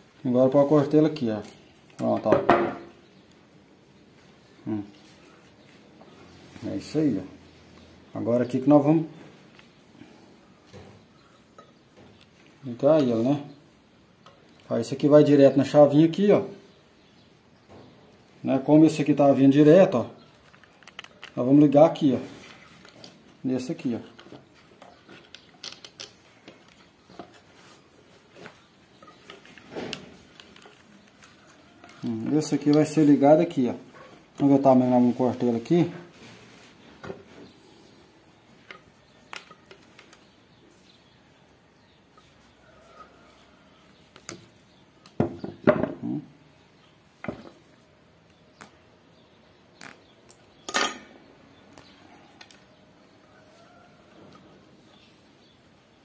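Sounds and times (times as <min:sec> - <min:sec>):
hands handling wire and small parts: 0:20.2 - 0:33.2, 0:38.2 - 0:40.9
clicks and knocks of tools: 0:24.1 - 0:27.5, 0:38.6 - 0:40.3.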